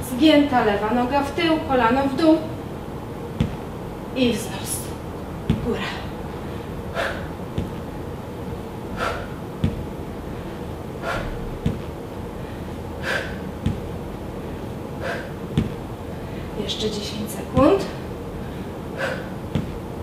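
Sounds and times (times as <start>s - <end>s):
soft low thump: 3.4s - 3.6s, 5.4s - 5.8s
woman breathing hard: 5.8s - 7.8s, 8.8s - 16.6s, 18.0s - 19.8s.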